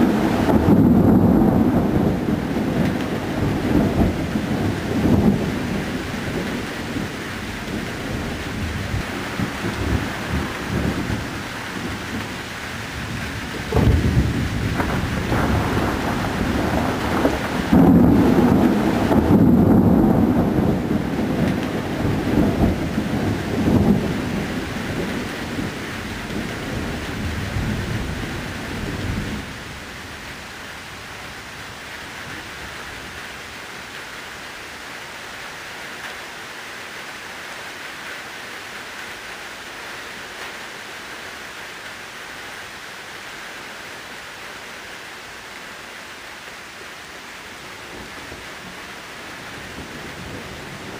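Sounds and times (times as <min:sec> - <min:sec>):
thunder rumbling: 0:00.0 - 0:29.8, 0:47.9 - 0:50.9
steady rain: 0:00.0 - 0:50.9.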